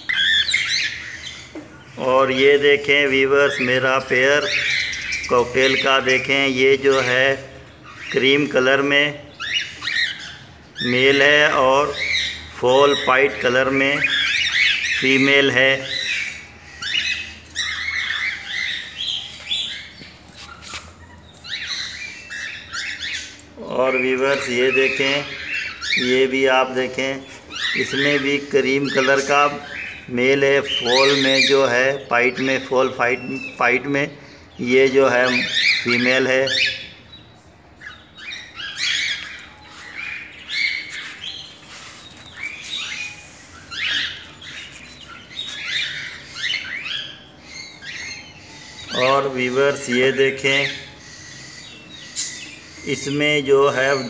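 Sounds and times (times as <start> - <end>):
cockatiels squawking chirps: 0.0 - 1.6, 4.4 - 5.9, 9.4 - 10.9, 14.0 - 15.0, 15.9 - 26.1, 27.3 - 30.1, 35.0 - 37.0, 37.8 - 54.0.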